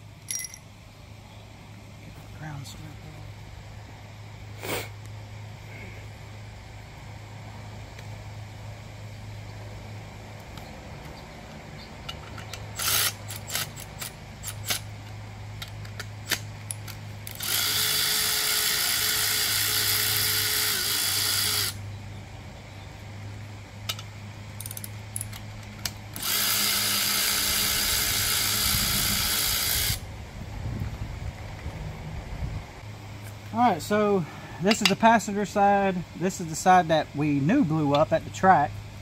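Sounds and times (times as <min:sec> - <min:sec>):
metallic clicks of tools and bolts: 0:00.2 - 0:00.7, 0:23.8 - 0:26.3
electric ratchet running: 0:12.3 - 0:14.9, 0:16.2 - 0:21.8, 0:26.1 - 0:30.0.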